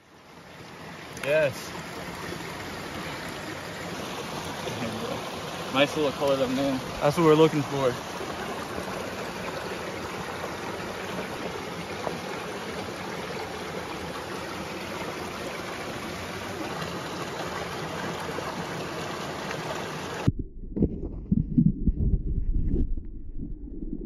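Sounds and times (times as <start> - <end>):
stream flowing over rocks: 0.0 - 20.3
underwater rumble: 20.2 - 24.0.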